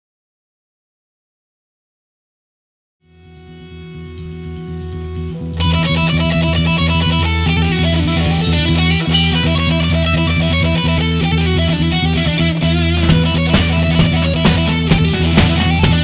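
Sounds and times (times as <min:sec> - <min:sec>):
rock music with electric guitar: 0:03.1 - 0:16.0
cymbal strokes: 0:08.4 - 0:10.4.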